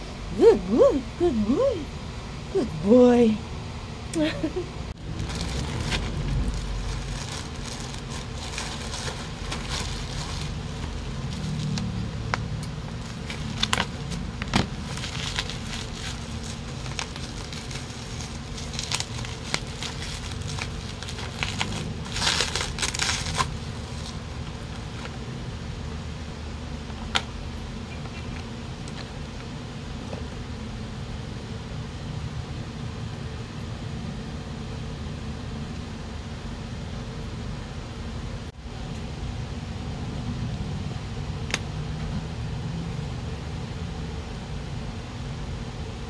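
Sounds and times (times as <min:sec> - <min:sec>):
low background rumble: 0:00.0 - 0:46.0
plastic packaging crinkling: 0:05.0 - 0:25.2.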